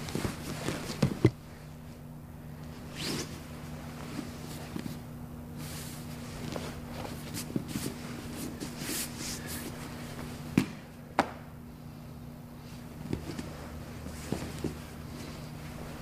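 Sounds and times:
cloth rustling: 0.0s - 1.3s, 2.7s - 10.5s, 12.6s - 16.0s
faint steady hum: 0.0s - 16.0s.

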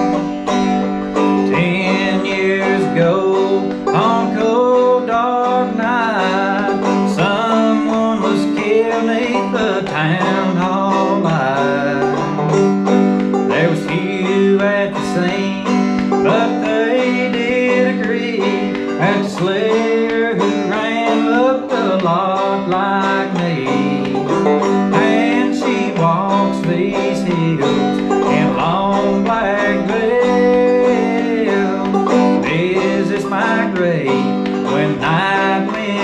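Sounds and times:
banjo picking melody: 0.0s - 36.0s.

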